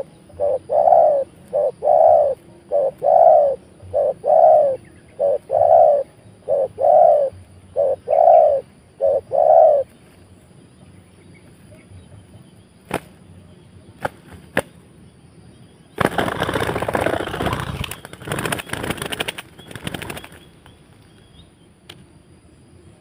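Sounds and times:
wings beating rapidly: 12.8 - 13.2, 16.0 - 20.5.

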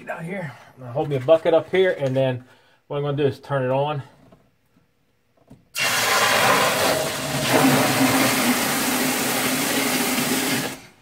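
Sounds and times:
water gushing into plastic bucket: 5.8 - 10.9.

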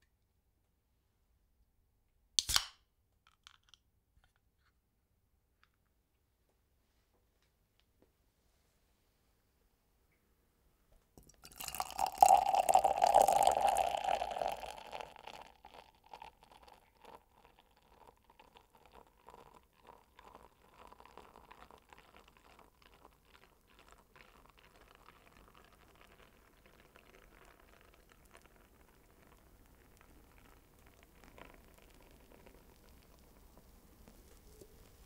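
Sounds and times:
beer pouring into a glass: 11.2 - 35.0
foam bubbles popping: 11.4 - 17.2, 21.9 - 35.0.

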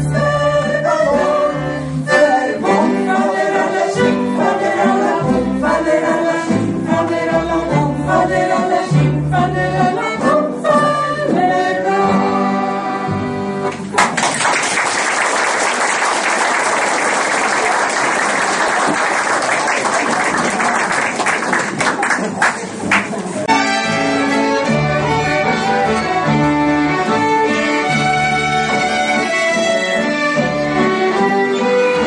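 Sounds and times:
group singing: 0.0 - 12.6
folk band playing: 0.0 - 14.2, 18.0 - 32.0
audience applause: 13.9 - 23.4.

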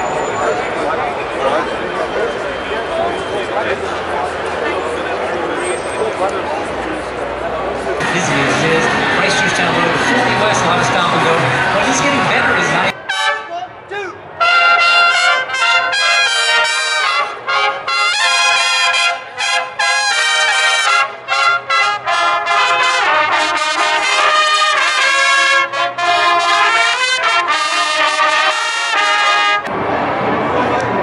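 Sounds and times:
brass band playing: 8.0 - 13.8, 14.4 - 29.7.

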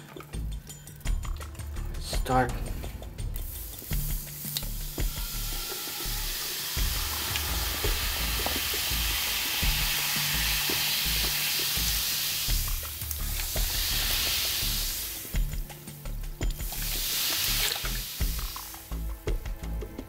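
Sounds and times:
cola fizzing and crackling: 3.8 - 15.4, 16.5 - 18.9.

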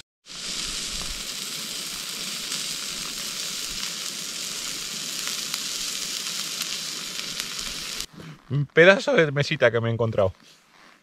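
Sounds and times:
steak sizzling in a frying pan: 0.2 - 8.1.

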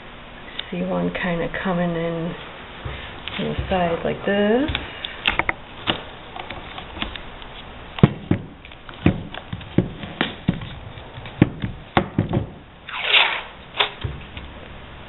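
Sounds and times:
tape rustling: 2.9 - 14.8.

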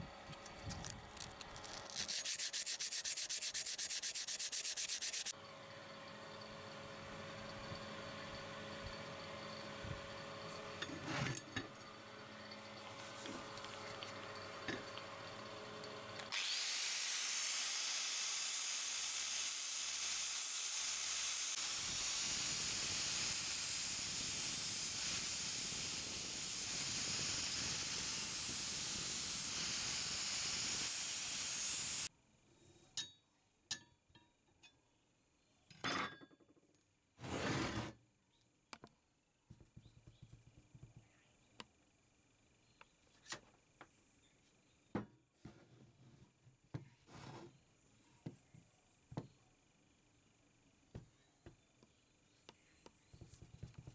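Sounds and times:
angle grinder grinding metal: 0.8 - 5.3.

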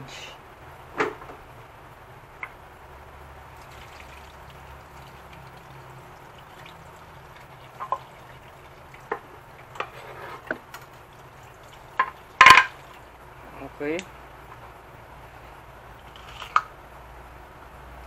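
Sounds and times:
water running from a tap: 3.4 - 13.2.

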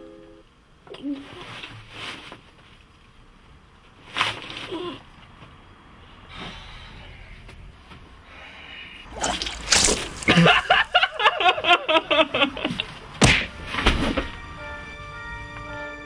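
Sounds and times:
man laughing hard: 10.3 - 13.0.

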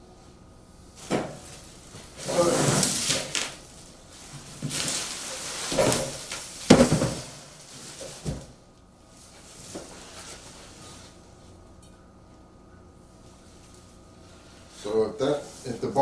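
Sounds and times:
cardboard and plastic crinkling: 1.0 - 8.6.

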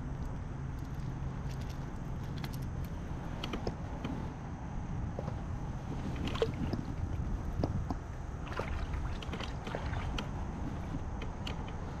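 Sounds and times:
steady low rumble: 0.0 - 12.0
kayak hull clicks and taps: 10.9 - 11.8.

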